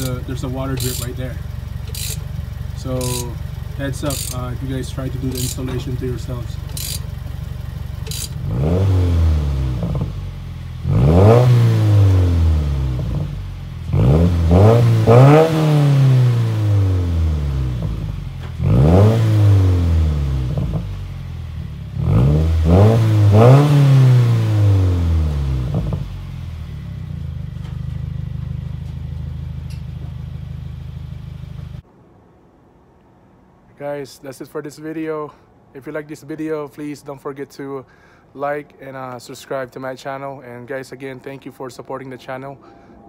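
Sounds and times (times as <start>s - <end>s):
car engine revving and idling: 0.0s - 31.8s.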